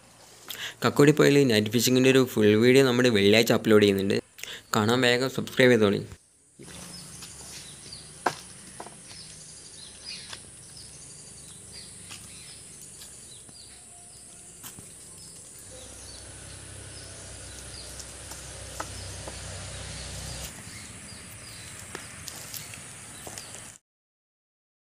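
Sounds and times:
insect drone: 6.3s - 23.8s.

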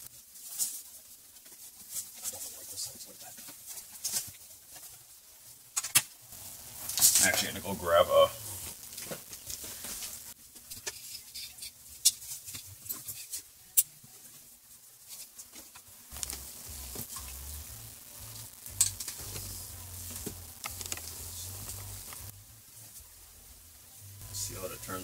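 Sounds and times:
power cords clicking and rustling: 20.1s - 22.3s.

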